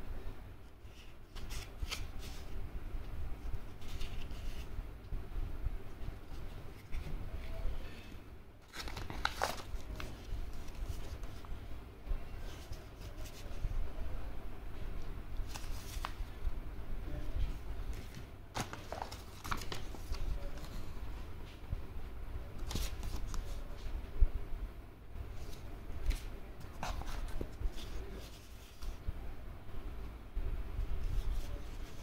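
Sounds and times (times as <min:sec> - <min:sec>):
paper rustling and crinkling: 0:00.8 - 0:02.6, 0:03.4 - 0:04.8, 0:08.6 - 0:11.6, 0:15.4 - 0:16.4, 0:17.4 - 0:20.9, 0:22.6 - 0:23.9, 0:25.4 - 0:29.0.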